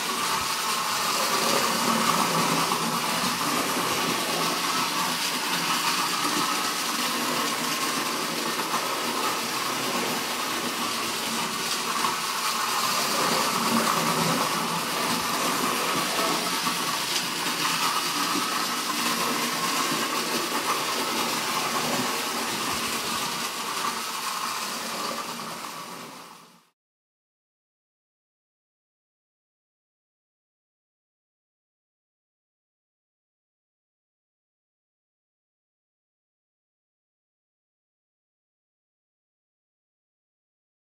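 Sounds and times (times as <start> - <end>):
toy trains running on track: 0.0 - 26.7.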